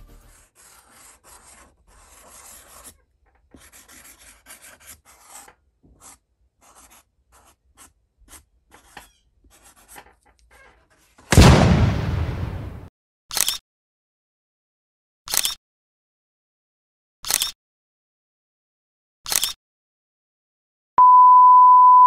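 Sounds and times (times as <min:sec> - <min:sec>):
marker scratching on cardboard: 0:00.1 - 0:11.3
loud bang: 0:11.3 - 0:12.9.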